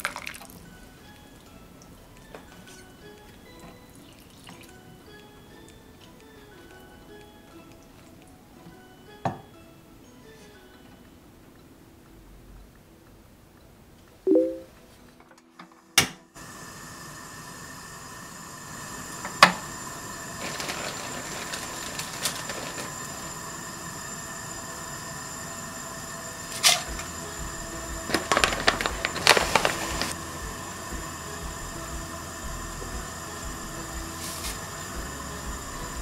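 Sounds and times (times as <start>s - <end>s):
gas burner flame hissing: 16.3s - 36.0s.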